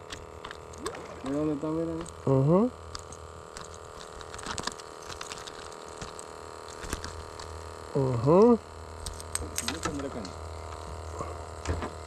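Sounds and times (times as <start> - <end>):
steady electric hum: 0.0 - 12.0
faint water sounds: 0.4 - 4.1.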